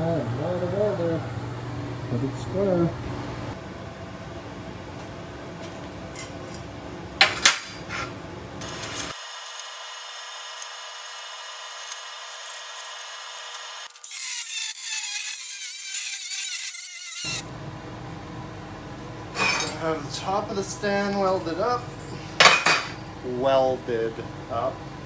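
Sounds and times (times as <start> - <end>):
angle grinder cutting steel sheet: 8.6 - 17.4.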